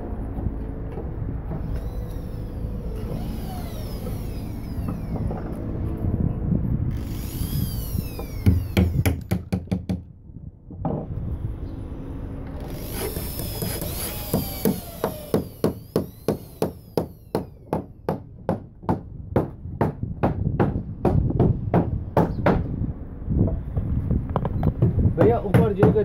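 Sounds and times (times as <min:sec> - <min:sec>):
faint falling whine: 0:00.0 - 0:09.1
hammer striking nails into wood: 0:08.2 - 0:10.1, 0:13.1 - 0:22.7, 0:24.8 - 0:26.0.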